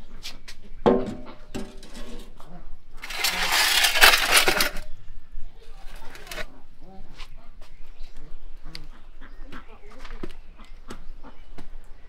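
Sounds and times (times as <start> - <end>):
metal tray scraping on stone: 1.0 - 4.9, 5.9 - 6.5.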